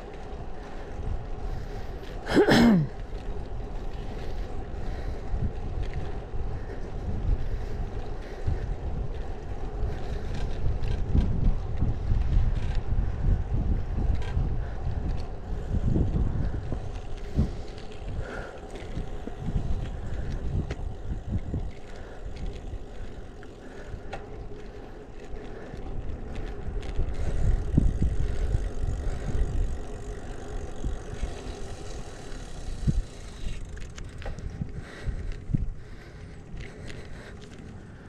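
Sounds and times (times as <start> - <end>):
bike clicks and rattles: 0.0 - 38.0
tyre noise on asphalt: 0.0 - 38.0
wind rumbling on microphone: 0.0 - 38.0.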